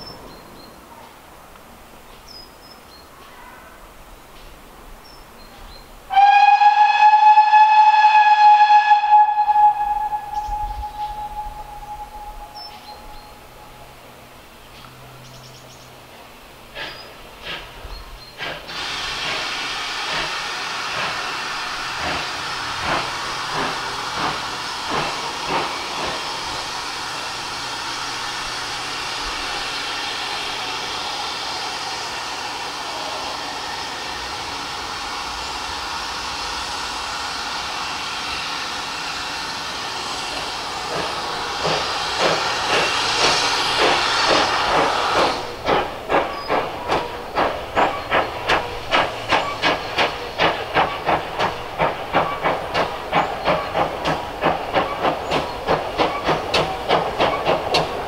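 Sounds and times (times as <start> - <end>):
steam hiss: 4.0 - 15.6, 16.5 - 58.0
locomotive exhaust beats: 16.8 - 31.5, 40.0 - 58.0.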